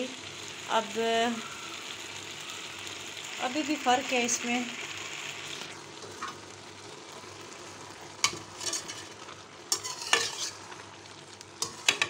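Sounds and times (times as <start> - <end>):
spoon scraping pan: 8.2 - 10.8, 11.6 - 12.0.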